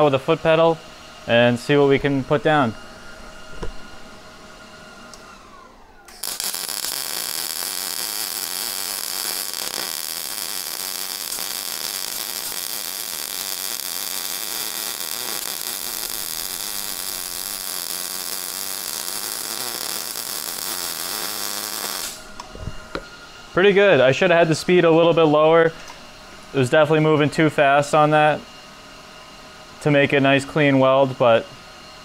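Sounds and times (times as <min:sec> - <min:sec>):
welding arc hissing: 0:06.1 - 0:22.4.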